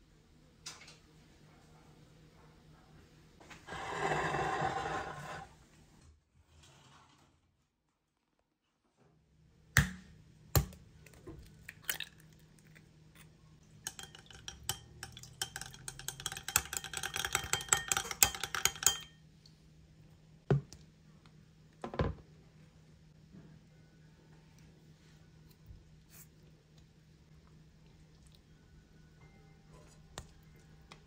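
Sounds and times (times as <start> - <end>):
utensil clinking against dish: 13.7 - 19.2.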